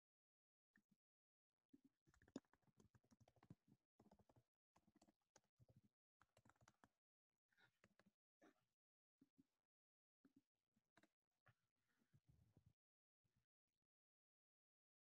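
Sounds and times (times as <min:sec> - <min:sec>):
faint keyboard typing: 0:01.8 - 0:08.7.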